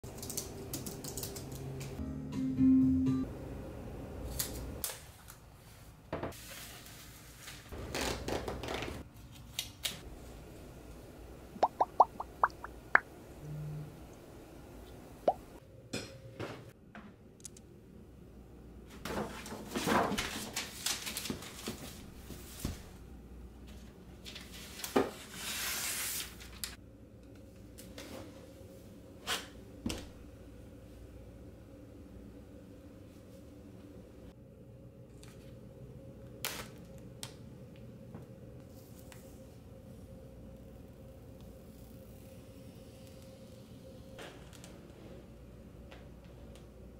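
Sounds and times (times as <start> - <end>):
ticks rising in pitch: 11.6 - 13.1
paper and cardboard rustling: 19.1 - 22.9.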